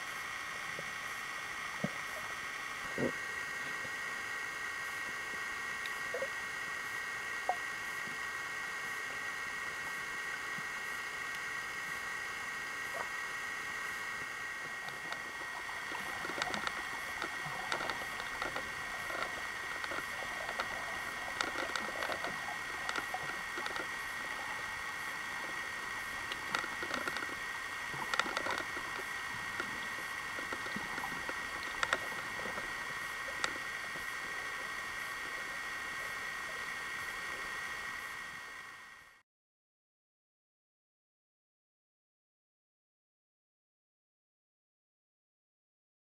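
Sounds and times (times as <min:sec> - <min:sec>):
steady high hum: 0:00.0 - 0:39.2
sharp clicks and crackles: 0:14.2 - 0:37.5.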